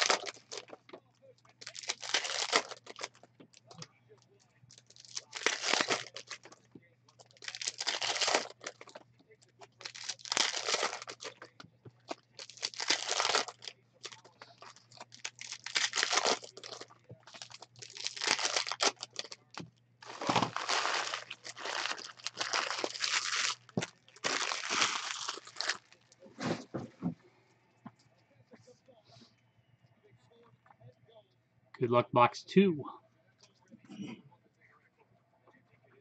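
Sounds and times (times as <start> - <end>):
foil wrappers crinkling and tearing: 0.0 - 1.0, 1.6 - 3.8, 4.7 - 6.6, 7.2 - 26.6.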